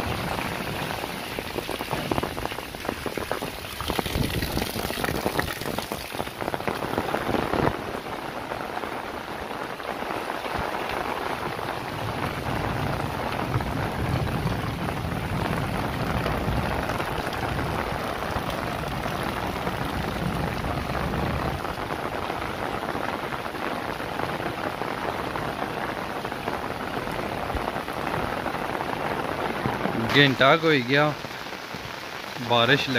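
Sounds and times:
rain on concrete: 0:00.0 - 0:32.9.

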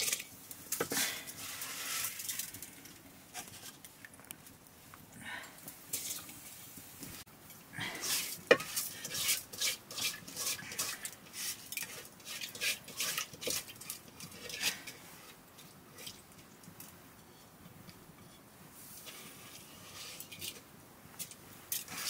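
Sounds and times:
hand mixing food in metal bowl: 0:08.0 - 0:16.5.

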